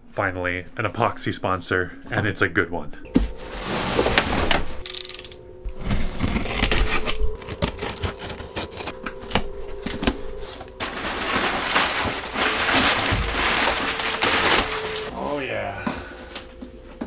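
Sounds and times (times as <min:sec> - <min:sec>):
cardboard box being opened: 0:05.7 - 0:15.1
packing material crinkling: 0:05.7 - 0:15.1.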